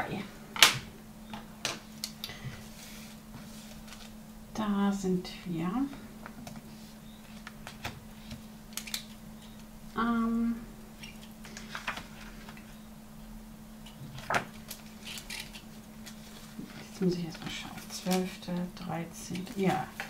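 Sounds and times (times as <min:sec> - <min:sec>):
steady low hum: 0:00.0 - 0:20.0
receipts rustling: 0:01.8 - 0:04.2, 0:11.0 - 0:12.8, 0:14.0 - 0:20.0
person humming: 0:10.0 - 0:10.7.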